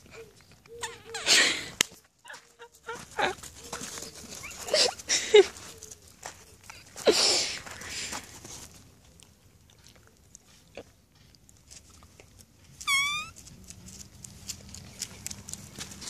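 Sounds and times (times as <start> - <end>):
puppy yelping: 0.2 - 1.5, 12.8 - 13.4
puppy nosing in gravel: 1.8 - 16.0.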